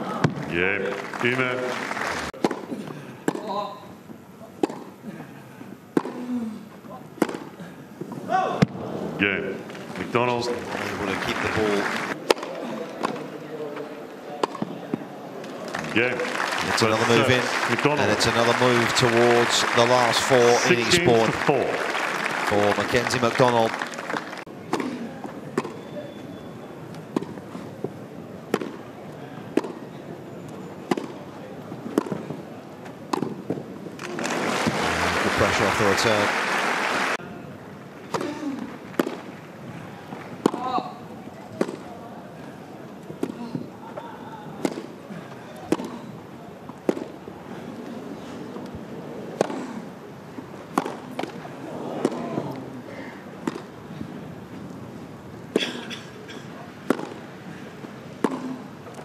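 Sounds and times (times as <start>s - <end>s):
tennis ball hit by rackets: 2.4s - 2.7s, 4.6s - 4.9s, 7.2s - 7.5s, 25.5s - 25.8s, 27.1s - 27.4s, 28.5s - 28.8s, 30.9s - 31.2s, 33.1s - 35.0s, 38.9s - 39.3s, 40.4s - 40.7s, 44.6s - 45.0s, 45.7s - 46.0s, 46.8s - 47.2s, 49.4s - 49.7s, 50.7s - 51.4s, 52.0s - 52.2s, 53.4s - 53.7s, 56.8s - 57.2s, 58.2s - 58.6s
low crowd murmur: 10.5s - 23.2s, 24.4s - 59.0s.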